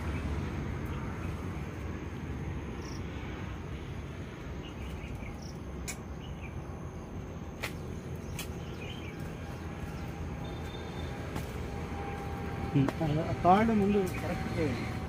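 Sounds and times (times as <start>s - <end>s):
bird chirps: 7.6s - 11.2s.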